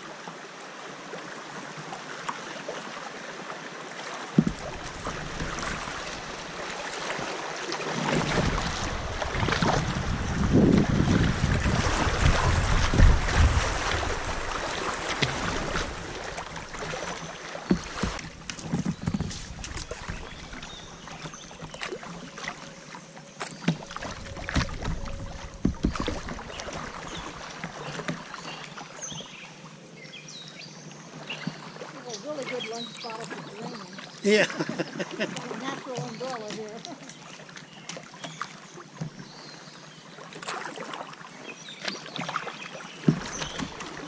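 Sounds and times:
paddle splashes and drips: 0:00.0 - 0:44.0
rushing water around kayak: 0:00.0 - 0:44.0
wind buffeting microphone: 0:08.2 - 0:14.6.

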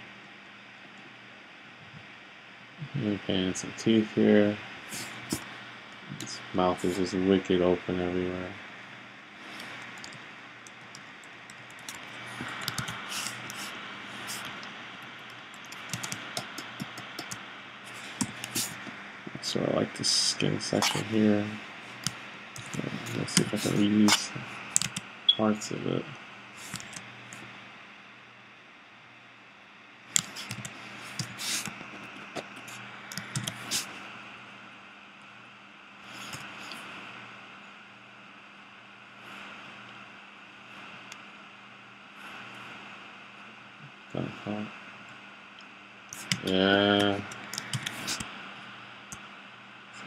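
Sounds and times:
low hum: 0:00.0 - 0:50.0
steady hiss: 0:01.4 - 0:28.0, 0:29.9 - 0:34.5
computer mouse and keyboard clicks: 0:09.6 - 0:13.7, 0:15.5 - 0:18.9, 0:22.0 - 0:25.0, 0:26.7 - 0:27.4, 0:30.1 - 0:33.8, 0:46.1 - 0:48.3.

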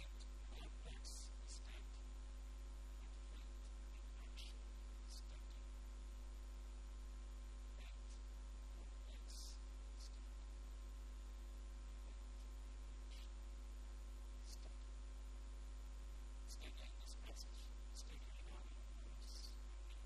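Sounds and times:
electrical mains hum: 0:00.0 - 0:20.0.

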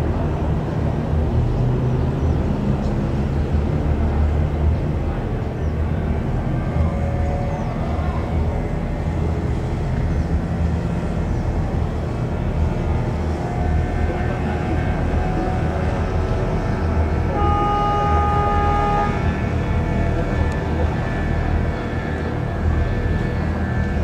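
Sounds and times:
boat engine rumble: 0:00.0 - 0:24.0
boat horn: 0:06.5 - 0:08.4, 0:13.2 - 0:22.2.

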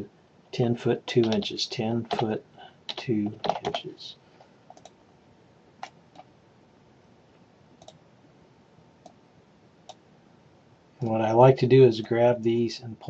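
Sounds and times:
computer mouse clicks: 0:04.4 - 0:05.0, 0:05.8 - 0:06.3, 0:07.8 - 0:08.0, 0:09.0 - 0:09.2.

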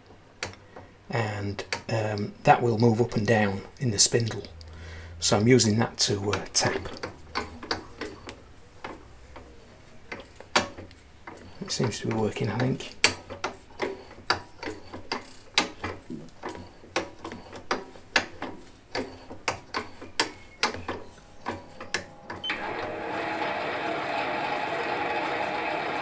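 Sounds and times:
lathe running: 0:21.0 - 0:26.0.

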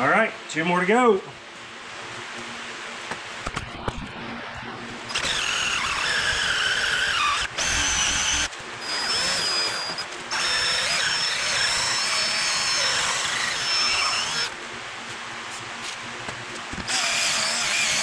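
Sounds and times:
cordless drill squealing on metal: 0:05.1 - 0:14.6, 0:16.9 - 0:18.0.

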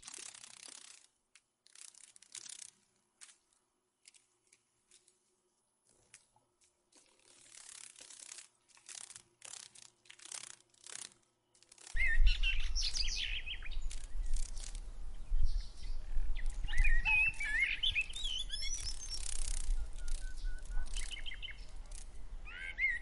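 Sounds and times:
short dry rustling: 0:00.0 - 0:12.1
birds chirping: 0:12.0 - 0:23.0.

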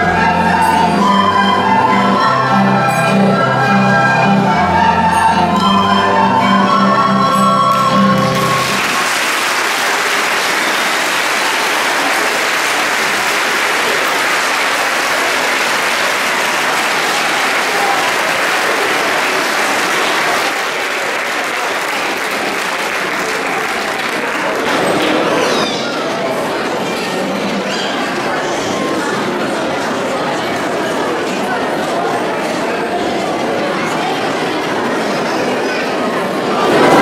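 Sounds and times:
audience applauding: 0:07.7 - 0:25.6, 0:36.4 - 0:37.0.

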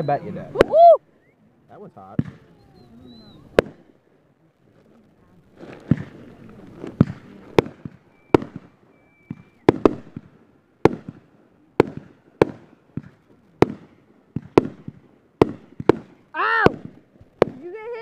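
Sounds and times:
fireworks bangs: 0:00.0 - 0:00.9, 0:01.7 - 0:04.1, 0:05.4 - 0:18.0
faint firework whistle: 0:00.0 - 0:01.5, 0:02.2 - 0:03.8, 0:07.0 - 0:10.2
fireworks crackling: 0:00.0 - 0:18.0.

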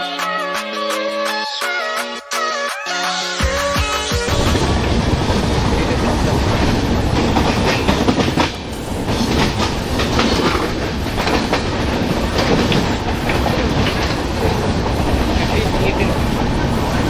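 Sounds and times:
train wheels rumbling on rails: 0:04.3 - 0:17.0
wheels clickety-clack: 0:04.3 - 0:17.0.

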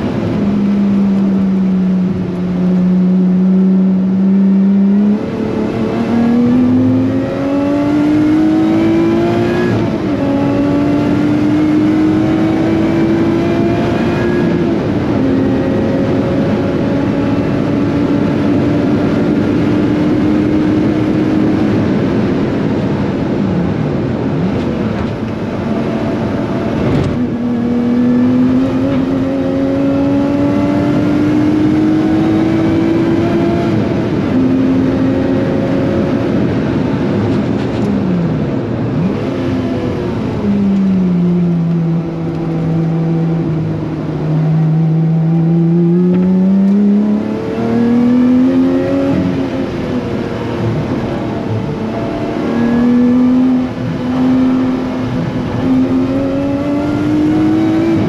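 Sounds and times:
car engine running hard: 0:00.0 - 0:58.0.

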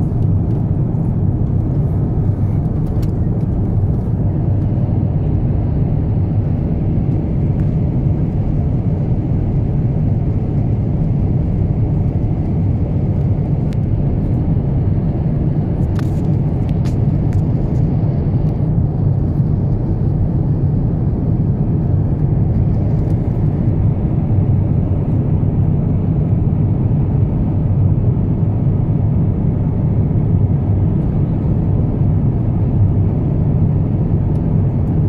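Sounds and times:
aircraft cabin engine roar: 0:00.0 - 0:35.0.

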